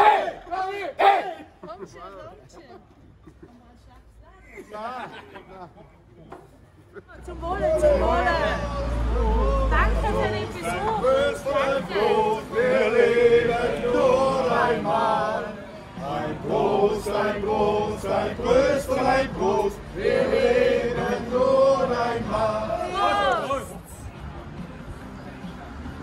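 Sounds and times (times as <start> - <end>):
men singing in chorus: 7.8 - 23.7.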